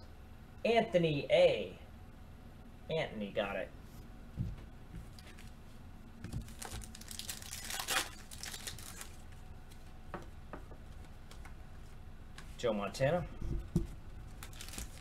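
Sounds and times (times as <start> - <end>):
foil wrapper tearing and crinkling: 6.3 - 9.3, 14.3 - 15.0.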